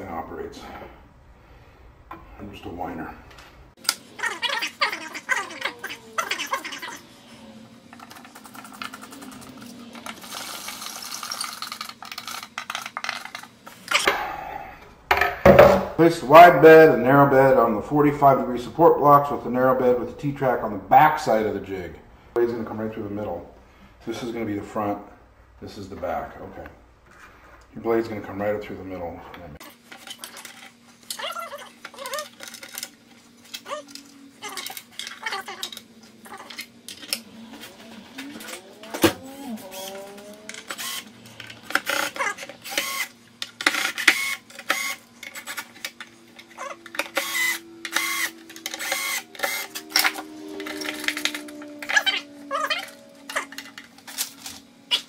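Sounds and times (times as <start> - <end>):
screwdriver clicking and scraping: 40.5 - 52.0.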